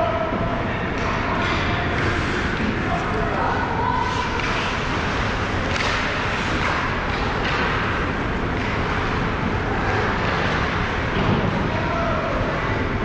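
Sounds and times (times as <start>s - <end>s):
rumbling din of ice rink: 0.0s - 13.0s.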